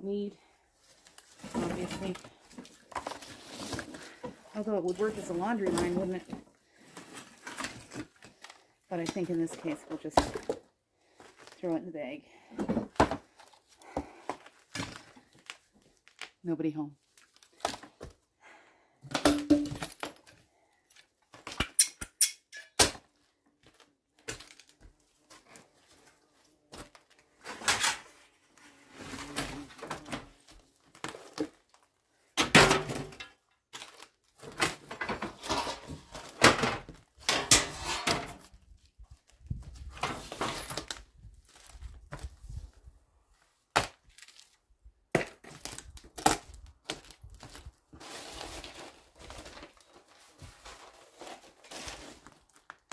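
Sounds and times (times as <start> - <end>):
debris knocking and clattering: 19.1 - 20.0, 34.8 - 38.4.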